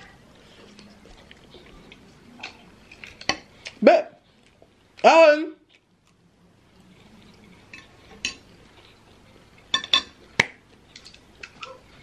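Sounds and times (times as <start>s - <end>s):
cutlery clinking on plate: 9.7s - 10.2s.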